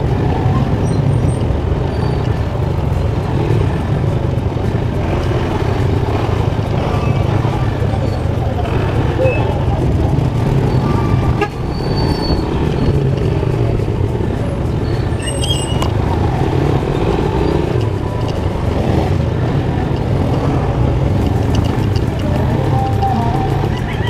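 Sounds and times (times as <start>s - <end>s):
motorcycle engine running: 0.0s - 24.0s
road and traffic noise: 0.0s - 24.0s
high horn toot: 11.3s - 12.0s.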